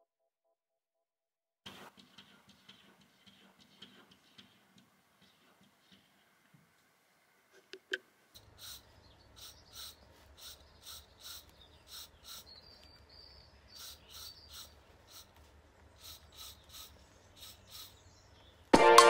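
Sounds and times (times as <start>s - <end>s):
spray-paint can bursts: 8.4s - 12.6s, 13.7s - 18.0s.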